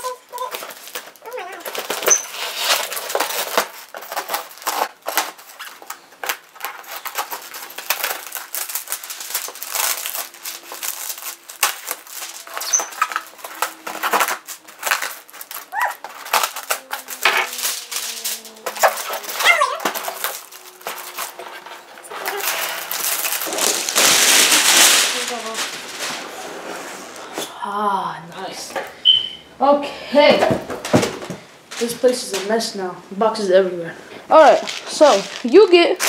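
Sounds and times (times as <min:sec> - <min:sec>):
cardboard box rustling and scraping: 0:00.5 - 0:04.9
short squeaks: 0:02.0 - 0:02.5, 0:12.5 - 0:13.8, 0:29.0 - 0:29.4.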